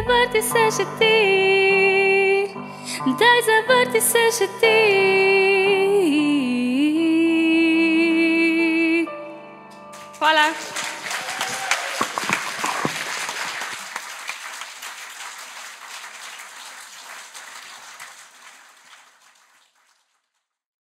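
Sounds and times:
audience applauding: 9.9s - 20.4s.

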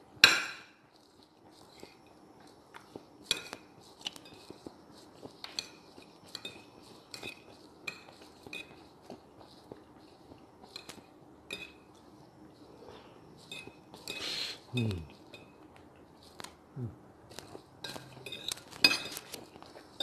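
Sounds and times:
cutlery scraping ceramic plate: 17.4s - 19.6s.

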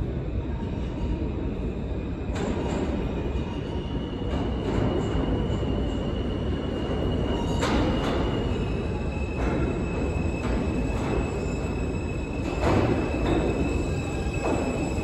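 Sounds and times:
subway train rumbling: 0.0s - 15.0s.

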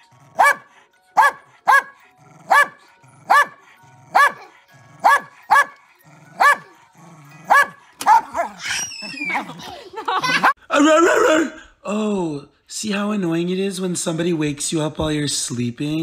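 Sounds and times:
dog barking: 0.3s - 6.8s, 7.5s - 8.6s.

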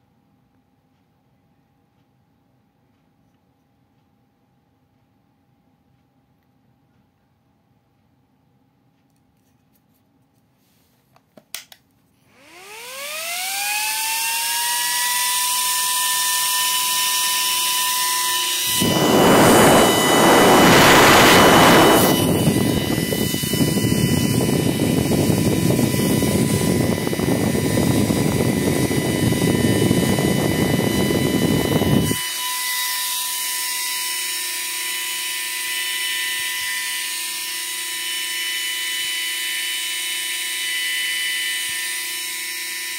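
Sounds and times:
fan whining: 12.3s - 33.0s
rushing air noise: 18.6s - 32.2s.

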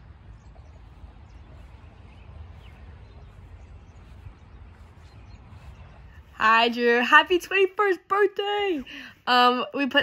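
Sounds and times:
low rumble on microphone: 0.0s - 6.6s.

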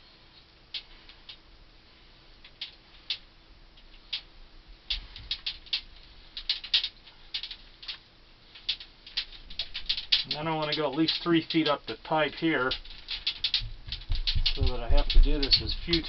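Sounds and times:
brush clicking and ticking: 0.7s - 1.4s, 4.9s - 16.0s.

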